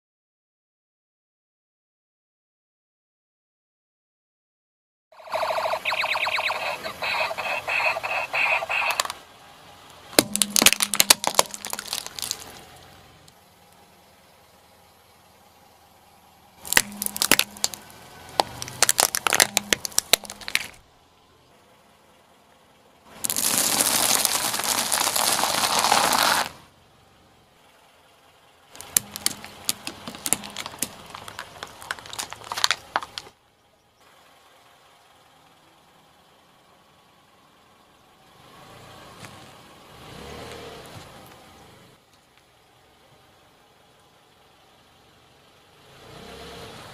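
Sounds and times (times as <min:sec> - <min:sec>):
crunching under a car tyre: 0:10.2 - 0:12.8, 0:16.6 - 0:20.8, 0:23.1 - 0:26.6, 0:28.8 - 0:33.3.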